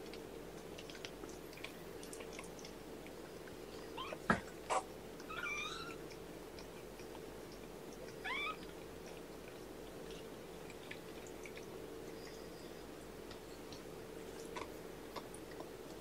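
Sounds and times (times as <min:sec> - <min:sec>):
faint steady hum: 0:00.0 - 0:16.0
kittens mewing: 0:04.0 - 0:06.0, 0:08.2 - 0:08.6.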